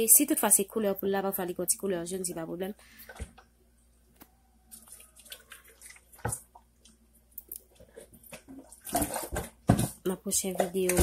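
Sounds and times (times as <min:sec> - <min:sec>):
wet handling of raw chicken: 0:04.3 - 0:09.5.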